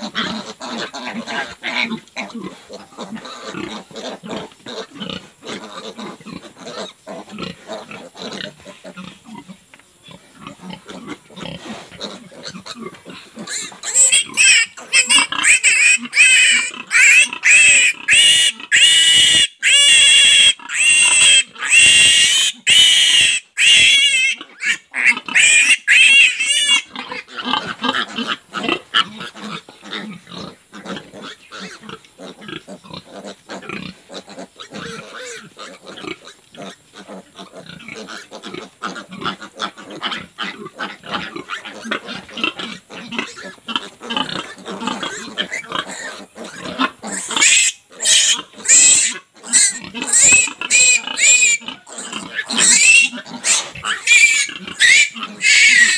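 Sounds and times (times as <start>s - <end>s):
short pig sounds: 10.1s - 55.9s
piglet squealing shrilly: 13.5s - 27.0s, 45.1s - 55.9s.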